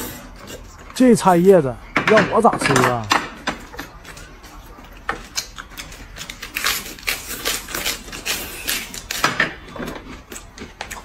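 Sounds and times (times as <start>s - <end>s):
lettuce crunching as chewed: 3.7s - 11.0s.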